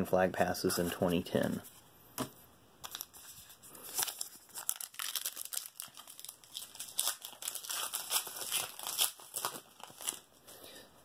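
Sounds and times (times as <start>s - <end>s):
wrapper crinkling and tearing: 2.8s - 10.4s.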